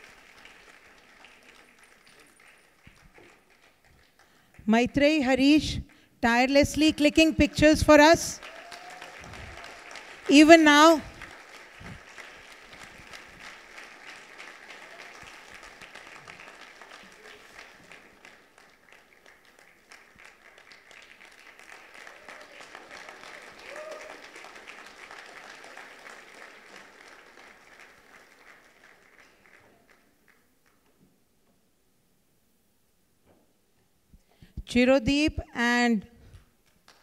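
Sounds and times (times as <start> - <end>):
audience applauding: 0.0 - 4.5, 6.8 - 30.9.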